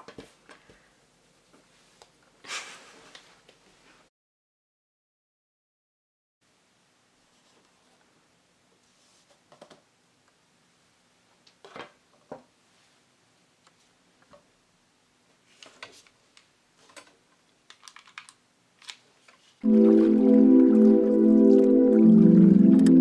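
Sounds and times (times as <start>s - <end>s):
loud music: 19.6s - 23.0s.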